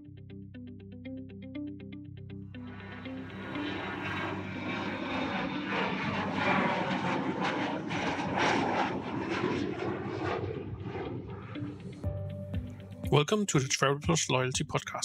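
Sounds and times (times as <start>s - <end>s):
airplane passing overhead: 2.5s - 13.0s.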